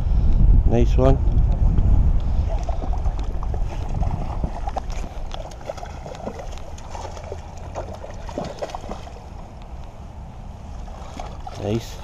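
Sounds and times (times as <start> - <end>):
wind rumbling on microphone: 0.0 - 12.0
fish splashing at water surface: 2.5 - 9.4, 10.8 - 11.6.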